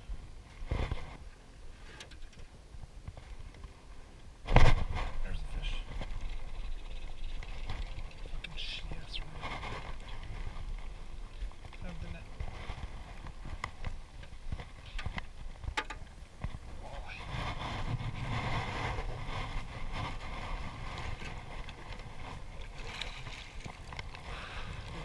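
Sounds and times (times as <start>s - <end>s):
wind on microphone: 4.4s - 25.0s
water splashing: 17.6s - 25.0s.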